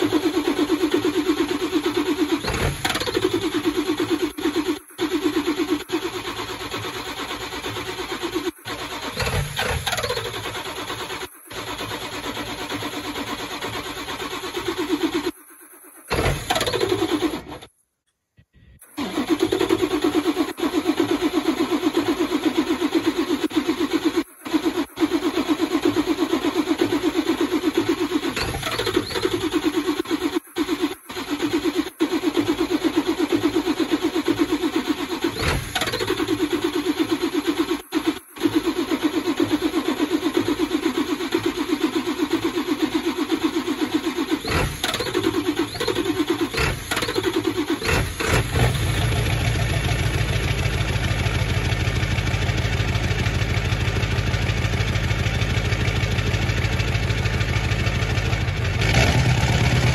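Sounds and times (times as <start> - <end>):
engine pops: 0.0 - 8.2, 8.8 - 15.4, 16.1 - 17.7, 18.8 - 59.9
diesel engine cranking on starter: 0.0 - 17.8, 18.8 - 59.9.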